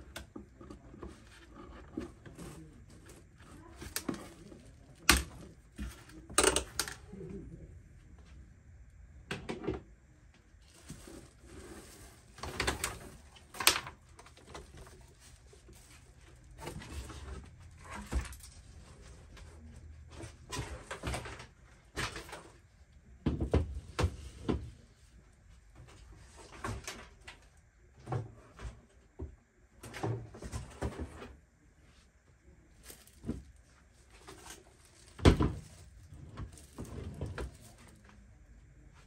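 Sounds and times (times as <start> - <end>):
cardboard and plastic wrap rustling: 0.4 - 6.9, 10.5 - 22.7, 32.7 - 38.3.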